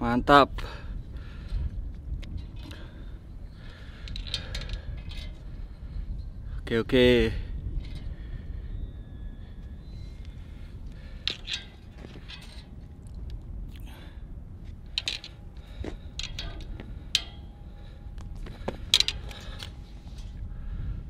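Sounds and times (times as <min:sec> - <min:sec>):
low steady rumble: 0:00.0 - 0:21.0
fishing tackle clicks and rattles: 0:04.0 - 0:05.4, 0:14.9 - 0:15.4, 0:16.2 - 0:17.4, 0:18.9 - 0:19.8.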